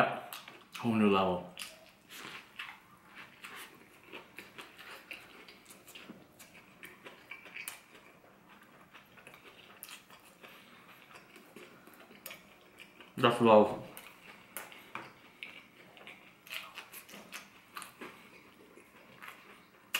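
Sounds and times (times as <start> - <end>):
chewing crunchy food: 0.3 - 19.9.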